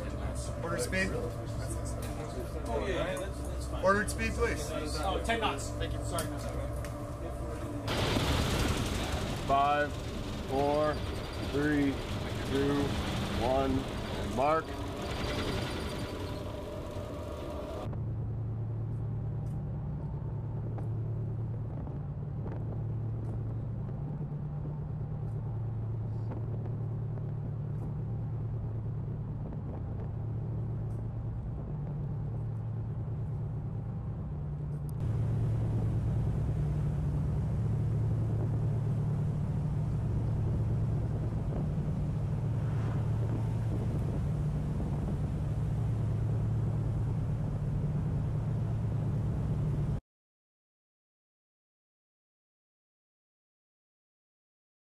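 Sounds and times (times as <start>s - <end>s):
ship rumbling through sea ice: 7.8s - 17.9s, 35.0s - 49.8s.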